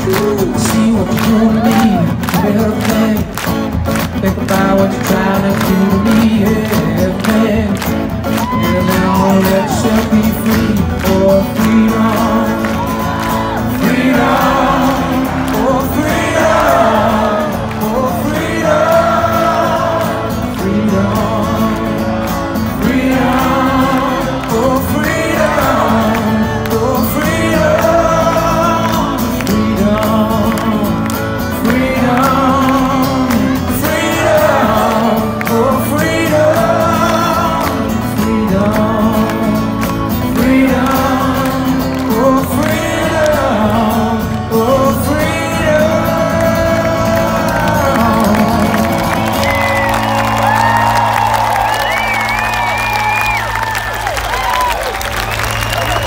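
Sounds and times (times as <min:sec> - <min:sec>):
person singing through a pa: 0:00.0 - 0:22.1
acoustic guitar through a pa: 0:00.0 - 0:54.2.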